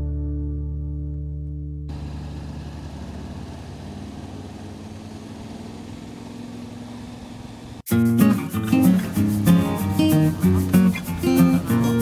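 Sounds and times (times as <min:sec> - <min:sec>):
motorcycle engine drone: 0:01.9 - 0:07.8
wind and road noise: 0:01.9 - 0:07.9.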